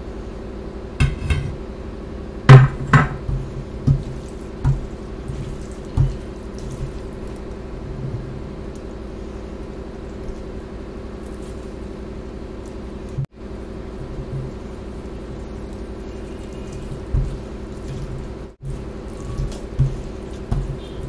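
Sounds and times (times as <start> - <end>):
steady low hum: 0.0 - 21.0
dishes clinking and knocking: 2.5 - 3.4.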